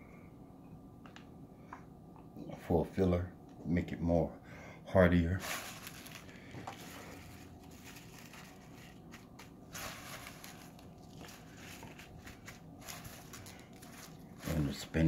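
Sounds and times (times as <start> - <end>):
rustling leaves with light crackles: 5.4 - 15.0.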